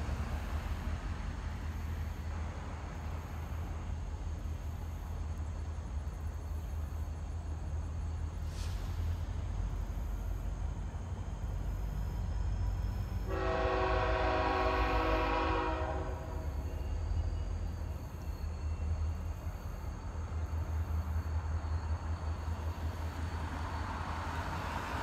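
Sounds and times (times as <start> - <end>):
train low rumble: 0.0 - 25.0
locomotive air horn blast: 13.3 - 16.8.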